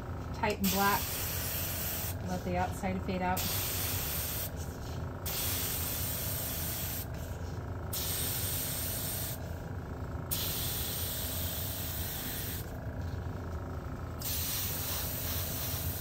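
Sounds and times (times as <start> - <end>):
airbrush hissing: 3.4 - 7.3, 7.9 - 9.4, 10.3 - 12.7, 14.2 - 16.0.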